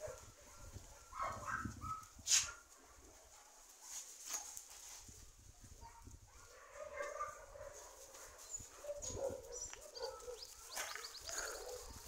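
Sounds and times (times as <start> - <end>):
dogs whining and barking: 6.4 - 12.0
short high bird chirps: 10.4 - 11.4.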